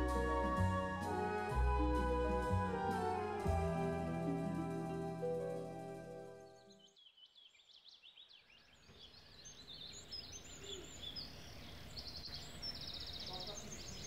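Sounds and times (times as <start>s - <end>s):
brass music: 0.0s - 6.7s
faint outdoor ambience: 0.0s - 14.0s.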